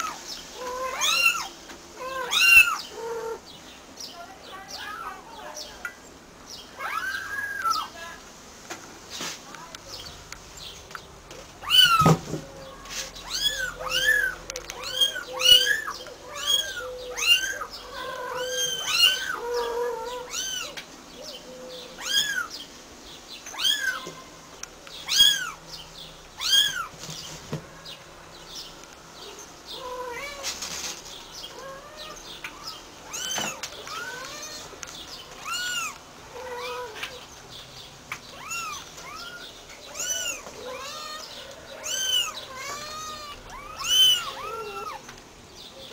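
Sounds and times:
kittens mewing: 0:12.8 - 0:20.8, 0:35.4 - 0:37.2, 0:38.3 - 0:45.0.

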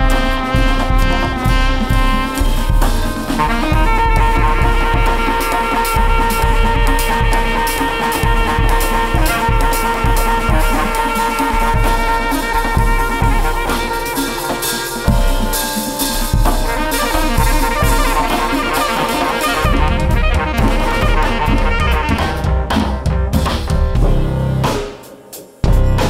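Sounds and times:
hand percussion: 0:00.0 - 0:22.4
saxophone melody: 0:00.0 - 0:22.8
drum kit: 0:00.0 - 0:26.0
upright bass: 0:16.2 - 0:24.8.

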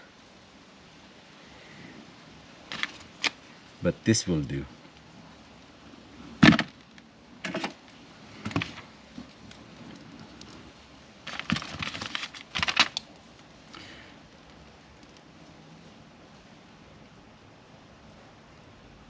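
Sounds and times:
tools clicking and clattering: 0:11.3 - 0:13.0.

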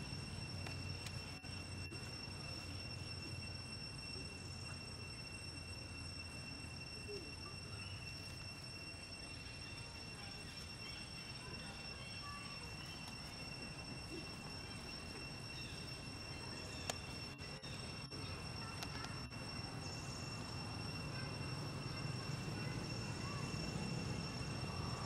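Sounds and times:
insects droning: 0:00.0 - 0:25.0.

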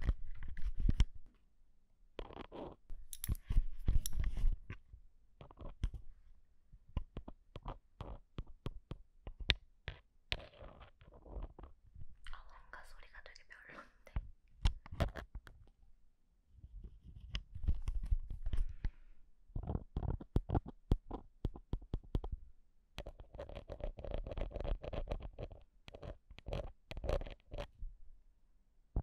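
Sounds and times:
scratching on microphone: 0:00.0 - 0:01.2, 0:02.2 - 0:04.8, 0:10.4 - 0:11.8, 0:19.5 - 0:21.2, 0:23.0 - 0:27.8.

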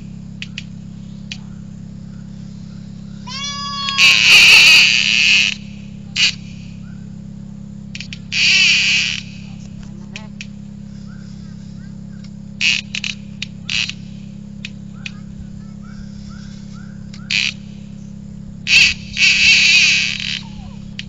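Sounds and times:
fishing reel drag buzzing: 0:02.3 - 0:06.9, 0:07.9 - 0:09.6, 0:12.5 - 0:14.1, 0:16.0 - 0:18.0, 0:18.7 - 0:21.0.

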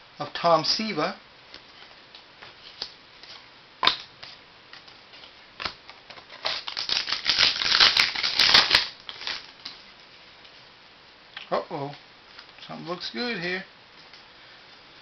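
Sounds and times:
wrapper crinkling as torn open: 0:05.6 - 0:09.8.

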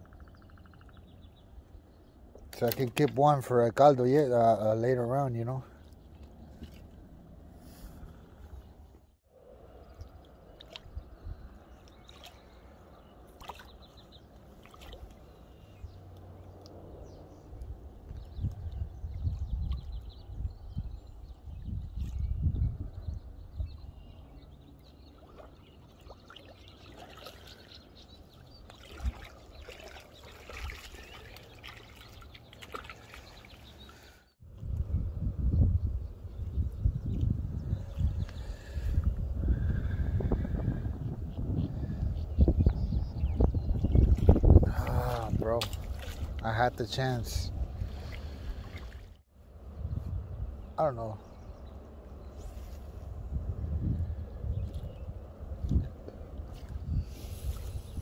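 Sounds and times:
shallow water trickling and splashing: 0:05.7 - 0:07.9, 0:09.7 - 0:20.3, 0:23.0 - 0:34.3, 0:43.7 - 0:46.6, 0:47.6 - 0:49.3, 0:55.6 - 0:58.0
wind rumble on microphone: 0:06.5 - 0:12.0, 0:15.6 - 0:25.4, 0:34.4 - 0:58.0
water splashing and dripping: 0:10.0 - 0:11.0, 0:11.8 - 0:12.6, 0:13.3 - 0:15.3, 0:25.1 - 0:34.0, 0:44.0 - 0:46.6.

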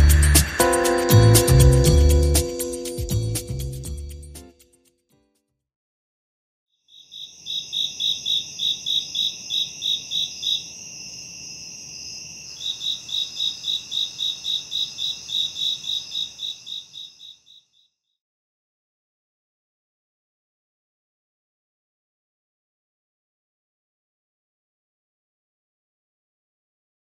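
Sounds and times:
crickets chirping: 0:06.9 - 0:17.9.

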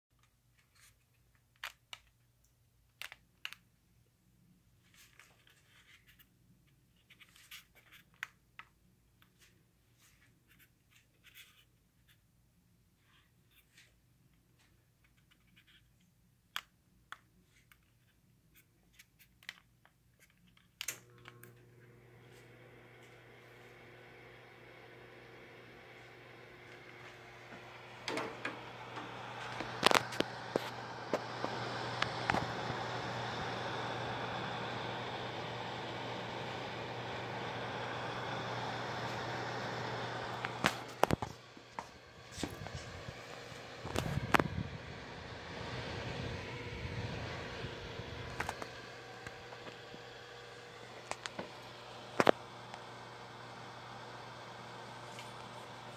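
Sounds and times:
heater fan hum and whir: 0:20.8 - 0:55.9.

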